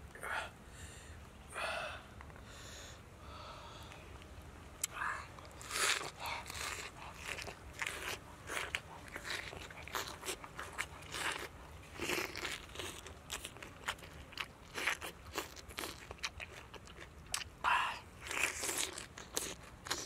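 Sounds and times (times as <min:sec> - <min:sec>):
crisp crunchy chewing: 0:03.9 - 0:17.6, 0:18.2 - 0:20.0.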